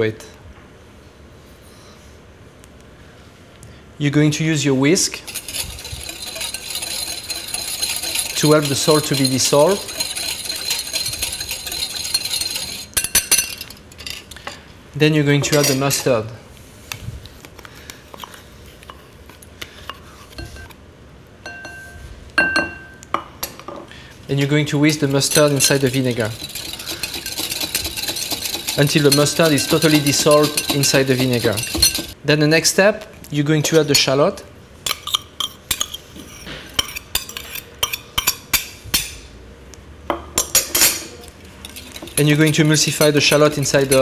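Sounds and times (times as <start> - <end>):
utensil scraping metal bowl: 5.1 - 14.4, 24.8 - 32.2, 34.9 - 38.7, 40.6 - 44.0.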